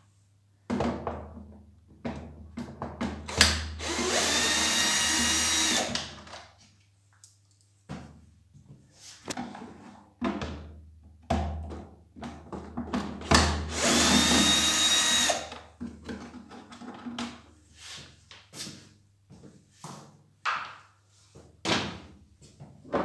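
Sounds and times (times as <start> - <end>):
cordless drill whining: 3.3 - 6.2, 13.7 - 15.6.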